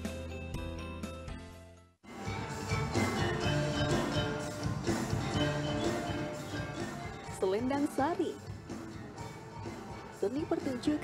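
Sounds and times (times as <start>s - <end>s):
keyboard: 0.0s - 11.0s
band music: 2.1s - 10.8s.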